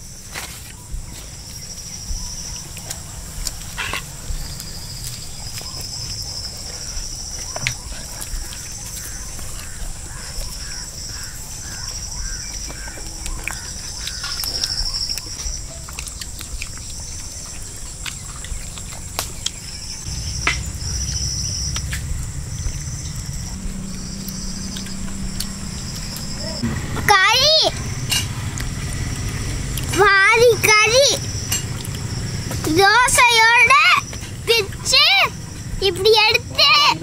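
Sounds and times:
insects trilling: 0.0s - 37.0s
low rumble: 0.8s - 36.0s
steady high drone: 19.2s - 37.0s.

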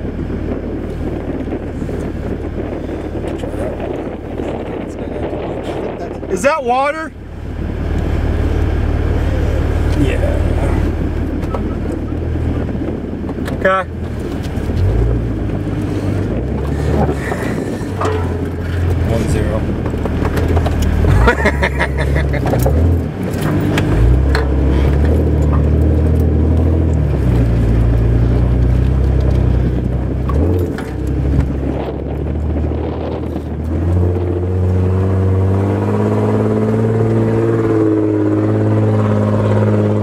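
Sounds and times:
truck engine working under load: 7.1s - 40.0s
knocks and rattles: 16.5s - 31.9s.

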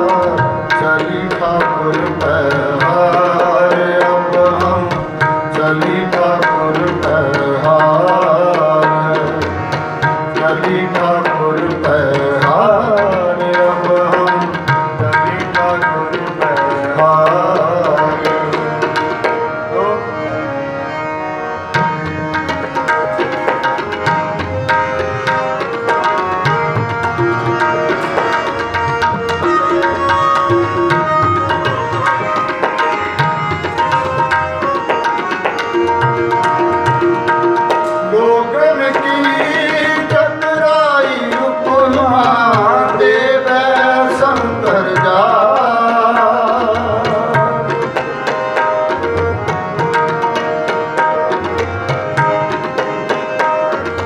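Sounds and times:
man singing ornamented melody: 0.0s - 20.3s, 37.8s - 48.0s
harmonium chords: 0.0s - 54.0s
tabla rhythm: 0.0s - 54.0s.

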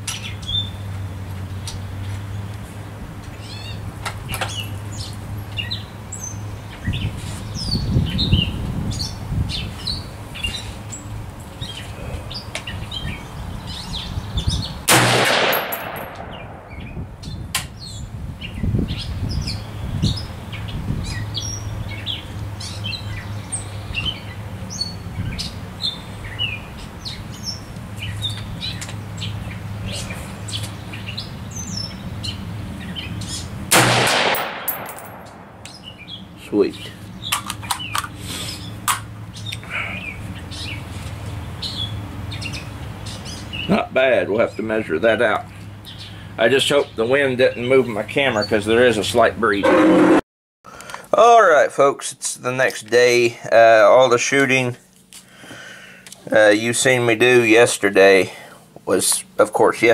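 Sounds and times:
small birds chirping: 0.0s - 2.6s, 3.3s - 14.9s, 15.5s - 33.6s, 34.6s - 49.3s
wind rumble on microphone: 6.7s - 10.6s, 11.3s - 14.9s, 16.2s - 22.2s
rifle shot with echo: 14.9s - 16.9s, 33.7s - 35.6s.

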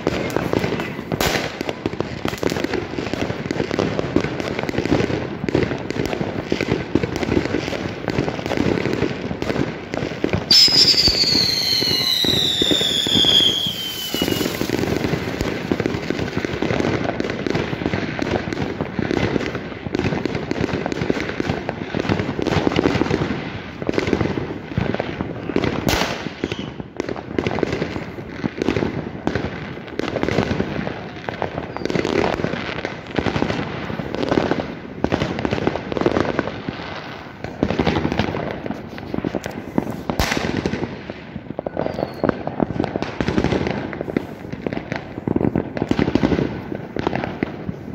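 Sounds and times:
fireworks crackling and banging: 0.0s - 47.9s.

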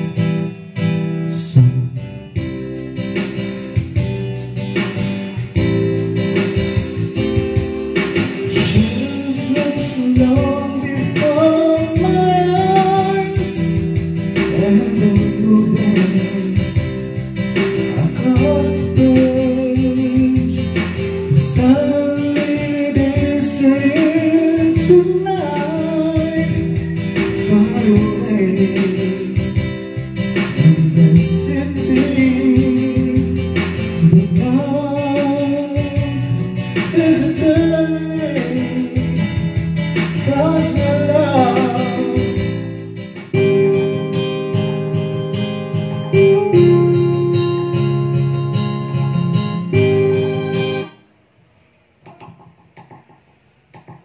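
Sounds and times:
acoustic guitar intro: 0.0s - 51.0s
karaoke song with band: 1.3s - 49.0s.

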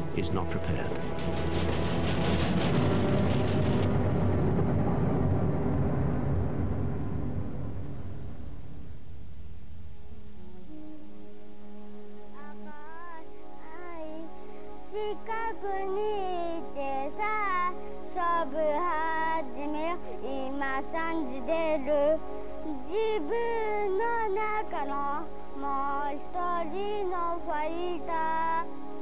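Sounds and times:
steady low drone: 0.0s - 11.3s.

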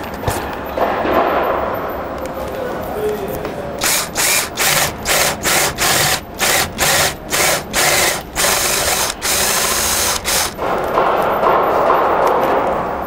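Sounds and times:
cordless drill boring wood: 3.8s - 10.6s.

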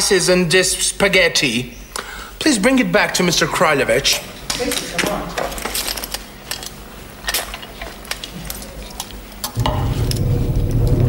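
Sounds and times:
loud low hum: 9.6s - 11.0s.

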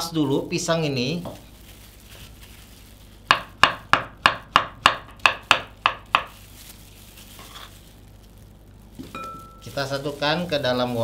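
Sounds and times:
knife chopping on wooden board: 3.3s - 6.3s.

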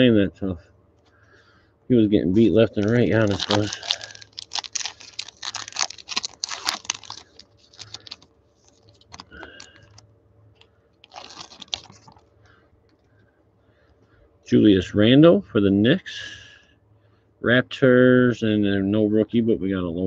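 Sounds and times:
foil wrapper crinkling and tearing: 2.2s - 10.0s, 11.0s - 12.3s.

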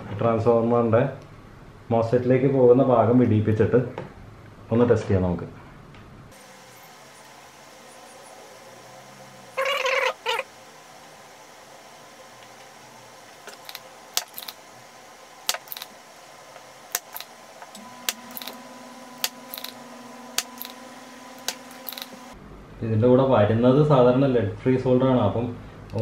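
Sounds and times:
low steady hum: 0.0s - 26.0s
soldering iron clicks: 15.5s - 15.8s, 16.9s - 18.6s, 19.2s - 19.8s, 20.4s - 20.8s, 21.4s - 22.2s.

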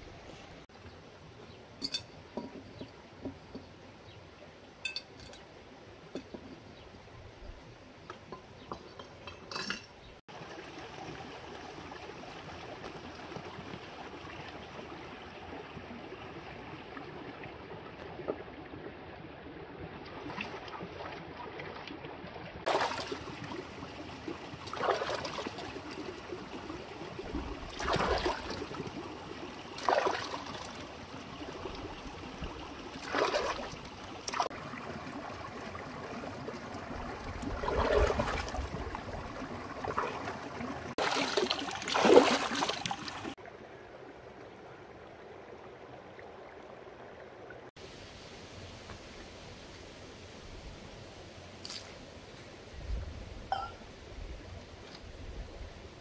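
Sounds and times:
water trickling: 8.7s - 43.5s
water splashes: 10.3s - 43.6s.

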